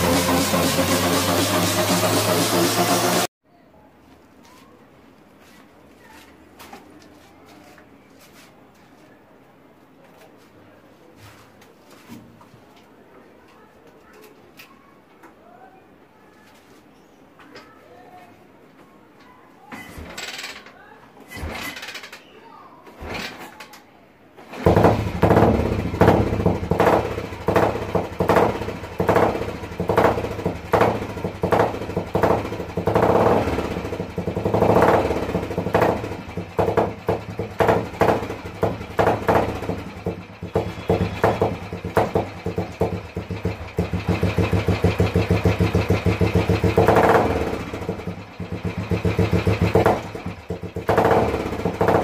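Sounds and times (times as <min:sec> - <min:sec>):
motorcycle engine kick-started: 0:00.0 - 0:03.3, 0:24.4 - 0:52.0
motorcycle engine revving: 0:00.0 - 0:03.3, 0:24.5 - 0:52.0.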